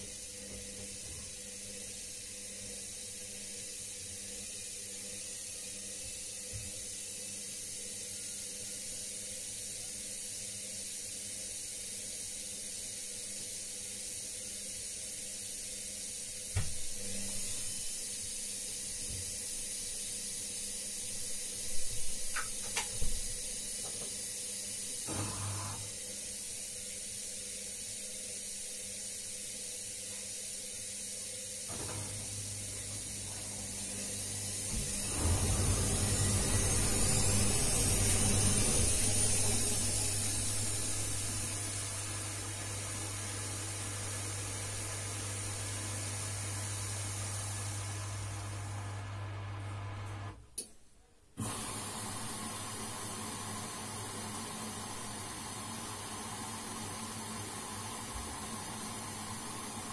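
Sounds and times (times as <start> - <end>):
washing machine motor hum: 16.0 - 26.3, 31.0 - 50.4, 51.4 - 59.9.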